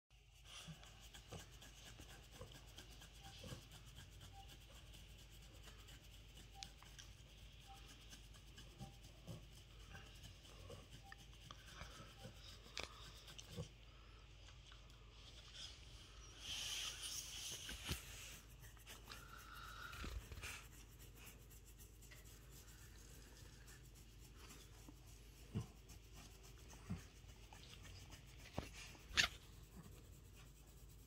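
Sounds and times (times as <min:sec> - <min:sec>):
hands rubbing dog fur: 0:00.2 - 0:13.8, 0:14.5 - 0:31.0.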